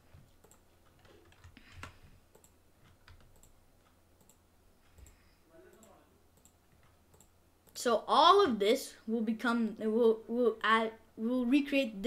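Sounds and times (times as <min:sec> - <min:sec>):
low electrical hum: 0:00.0 - 0:12.0
faint computer mouse clicks: 0:00.4 - 0:07.8.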